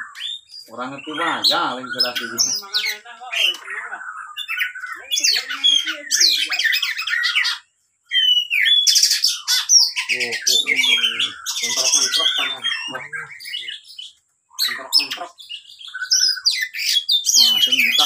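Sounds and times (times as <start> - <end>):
bird singing whistles and buzzy notes: 6.2 - 18.0.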